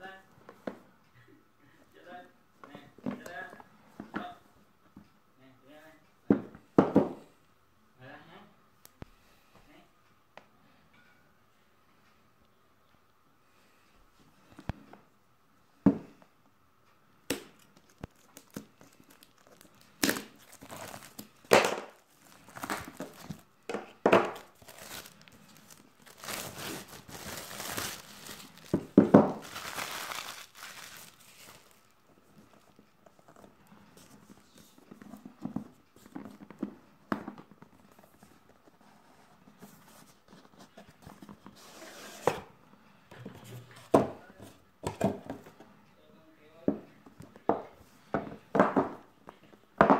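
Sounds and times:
plastic shrink-wrap crinkling and tearing: 0:17.6 - 0:23.5, 0:24.2 - 0:31.9
handling rustles: 0:17.6 - 0:36.6.

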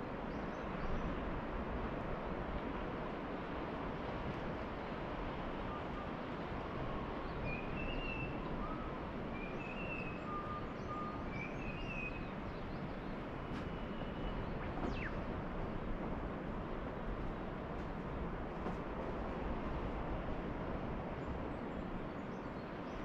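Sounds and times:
birds whistling and chirping: 0:07.5 - 0:12.3, 0:13.7 - 0:15.3.

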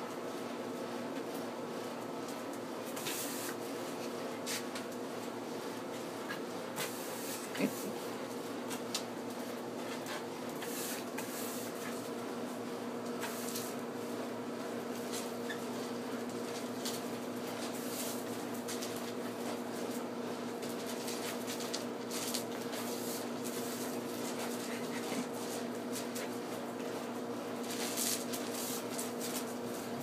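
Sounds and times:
steady background hum: 0:00.0 - 0:30.0
broom scraping on concrete: 0:03.0 - 0:03.6, 0:06.8 - 0:07.9, 0:09.9 - 0:12.0, 0:13.2 - 0:13.8, 0:17.7 - 0:18.3, 0:21.0 - 0:26.1, 0:27.7 - 0:29.8.

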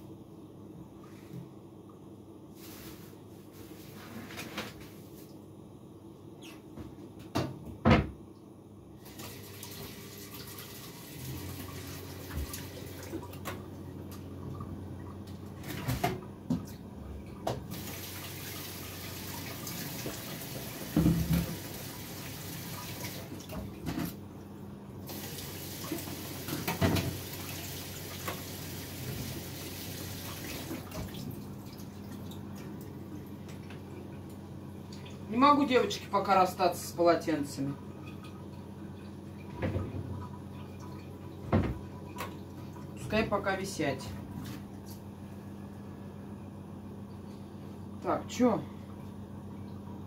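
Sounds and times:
tap running into sink: 0:19.9 - 0:21.8, 0:25.7 - 0:29.4
dishes knocking in sink: 0:20.9 - 0:21.6.

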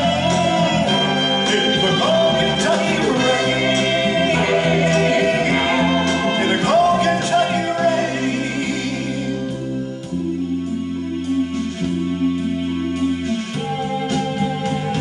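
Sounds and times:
backing singers holding sliding notes: 0:00.0 - 0:15.0
band backing track over speakers: 0:00.0 - 0:15.0.

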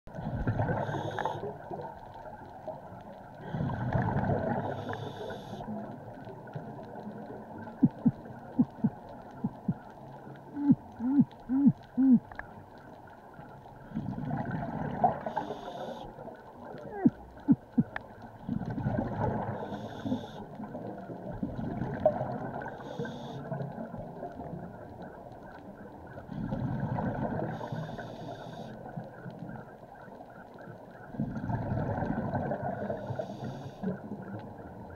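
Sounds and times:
regulator breathing inhalations: 0:04.7 - 0:05.6, 0:15.3 - 0:16.1, 0:19.6 - 0:20.4, 0:22.8 - 0:23.5, 0:27.6 - 0:28.8, 0:33.0 - 0:33.9
exhaust bubbles: 0:13.9 - 0:15.3.

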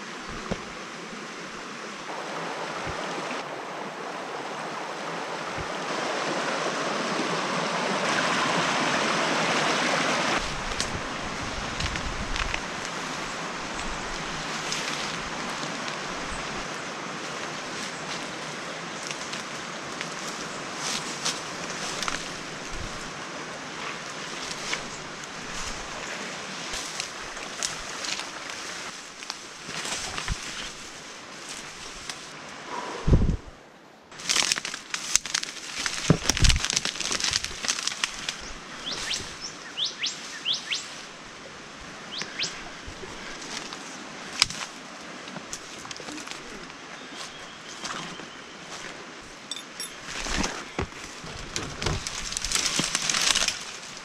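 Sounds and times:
waterfall rushing: 0:00.0 - 0:28.5
twigs cracking: 0:10.4 - 0:16.7, 0:17.3 - 0:23.1, 0:23.8 - 0:26.1, 0:26.7 - 0:32.3, 0:34.1 - 0:39.5, 0:42.1 - 0:48.2, 0:50.0 - 0:54.0
faint rustles of brush: 0:10.4 - 0:32.4, 0:34.2 - 0:41.9, 0:42.5 - 0:54.0
bird chirping: 0:38.8 - 0:40.9.

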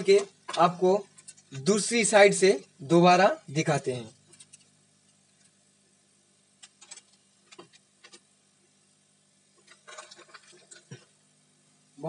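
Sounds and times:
low steady hum: 0:00.0 - 0:12.0
laptop parts clicking and tapping: 0:06.6 - 0:08.2.

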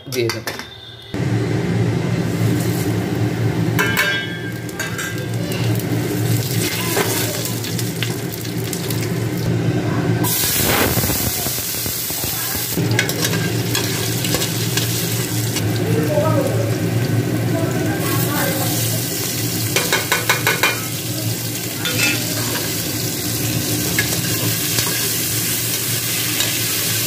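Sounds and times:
spices sizzling in hot oil: 0:02.2 - 0:09.5, 0:10.2 - 0:27.0
metal spoon clinking on pot: 0:03.8 - 0:05.2, 0:19.8 - 0:20.9, 0:21.8 - 0:22.6.

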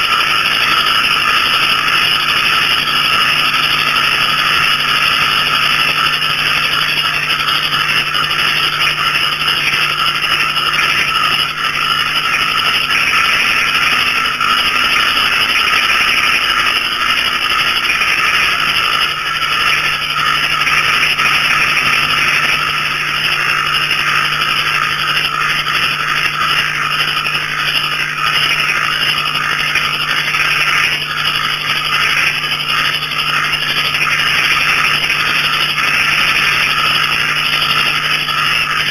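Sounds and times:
frogs and crickets trilling: 0:00.0 - 0:38.9
low steady drone: 0:00.0 - 0:38.9.

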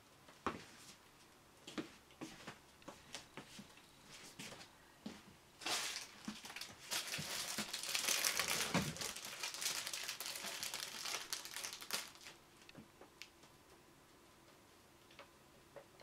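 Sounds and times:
plastic bag crinkling: 0:05.6 - 0:12.4.

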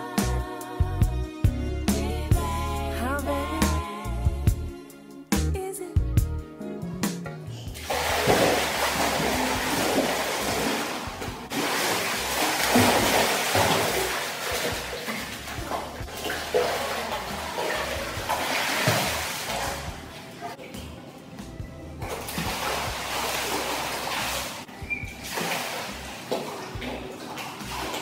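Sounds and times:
music: 0:00.0 - 0:28.0
swimmer splashing in pool: 0:07.8 - 0:20.6, 0:22.1 - 0:28.0.

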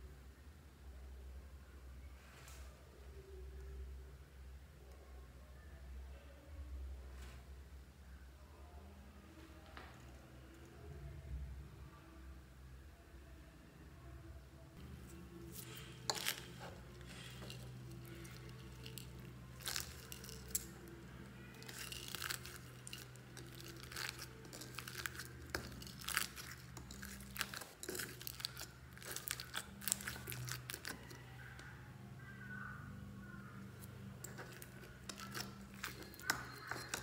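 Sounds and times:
foam slime crunching and popping: 0:15.5 - 0:20.8, 0:21.5 - 0:31.2, 0:34.2 - 0:37.0.

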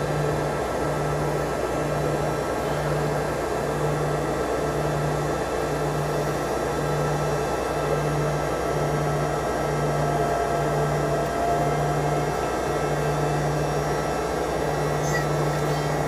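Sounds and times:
jet engines rushing in cabin: 0:00.0 - 0:16.0.

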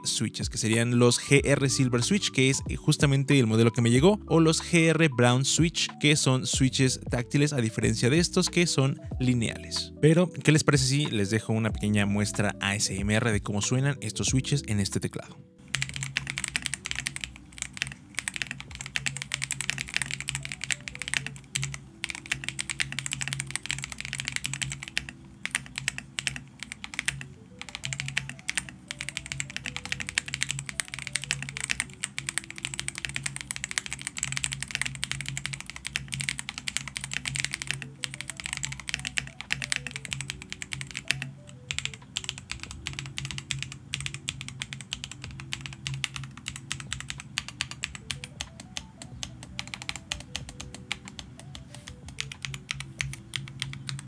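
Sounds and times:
soft background music: 0:00.0 - 0:54.0
mechanical keyboard typing: 0:15.6 - 0:54.0.

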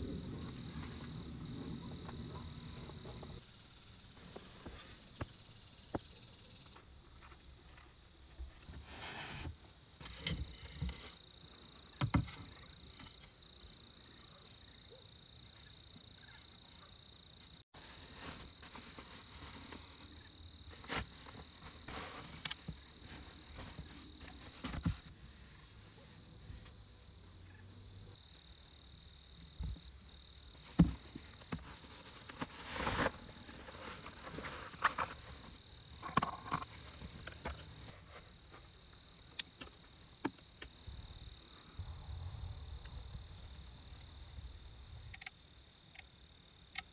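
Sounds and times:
crickets singing: 0:00.0 - 0:06.8, 0:27.0 - 0:46.9.

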